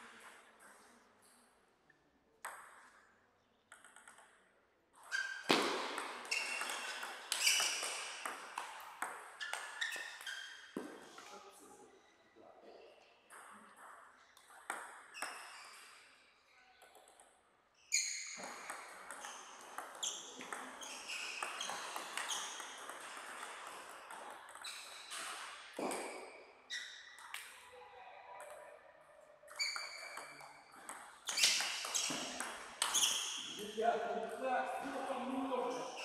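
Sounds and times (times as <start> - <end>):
table tennis ball pinging: 3.7 - 11.0, 13.3 - 16.0, 16.8 - 27.6, 29.5 - 33.6.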